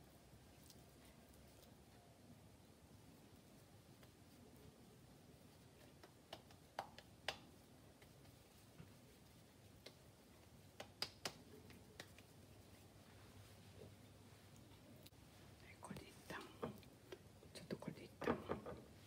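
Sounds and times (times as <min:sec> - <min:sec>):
hands patting burger patty: 0:05.3 - 0:12.9.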